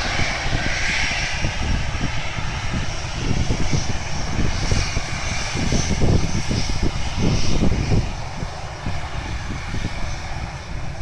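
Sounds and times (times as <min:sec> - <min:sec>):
jet engines rumbling: 0:00.0 - 0:11.0
wind buffeting microphone: 0:00.0 - 0:11.0.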